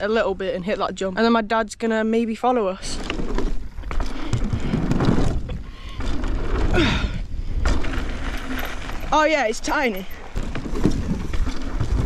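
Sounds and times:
bike tyre rumble and rattling: 0:02.4 - 0:12.0
wind buffeting microphone: 0:02.7 - 0:12.0.

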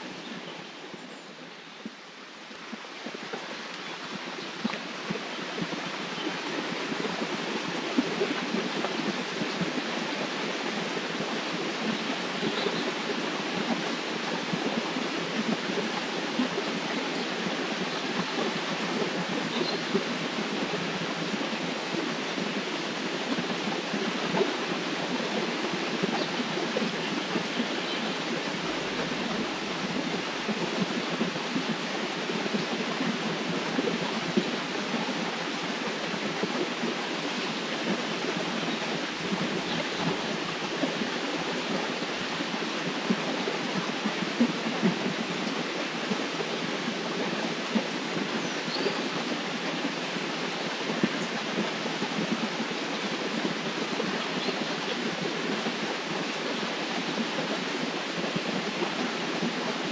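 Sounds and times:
river water rushing: 0:00.0 - 0:59.9.

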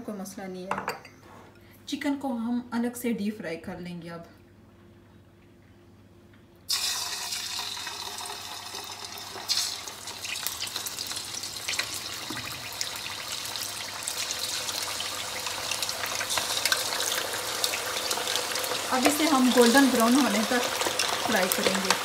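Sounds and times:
chicken sizzling in hot oil: 0:06.7 - 0:22.0.

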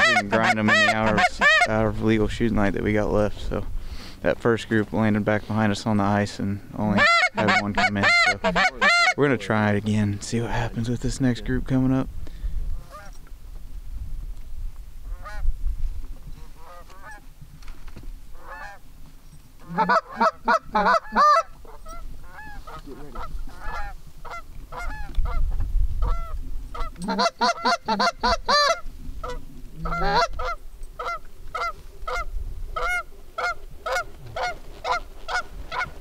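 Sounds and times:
geese honking and clucking: 0:00.0 - 0:01.9, 0:06.8 - 0:09.7, 0:12.8 - 0:13.1, 0:15.0 - 0:15.5, 0:16.4 - 0:17.3, 0:18.3 - 0:18.8, 0:19.6 - 0:36.0.

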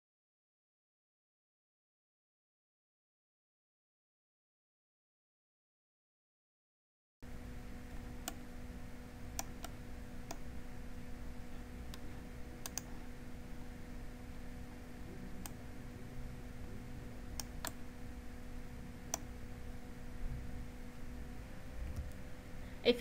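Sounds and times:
faint steady hum: 0:07.2 - 0:23.0
mouse buttons clicking: 0:11.9 - 0:13.0, 0:17.4 - 0:17.8.

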